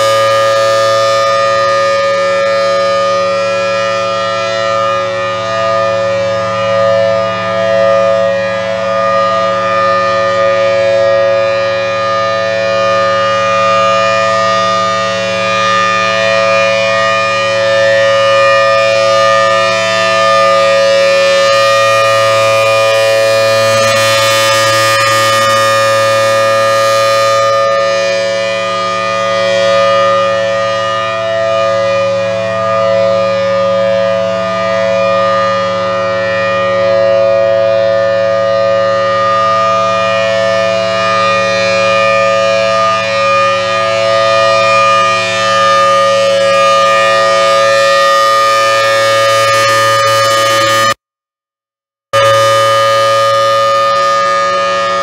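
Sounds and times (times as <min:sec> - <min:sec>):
warning siren steady tone: 0:00.0 - 0:51.0, 0:52.2 - 0:55.0.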